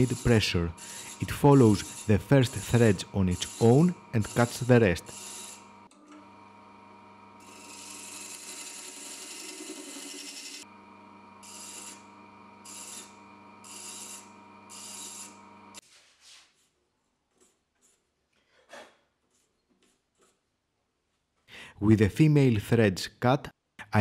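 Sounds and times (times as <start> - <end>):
thread chaser scraping wood: 0.0 - 5.6
wood lathe motor running: 0.0 - 15.8.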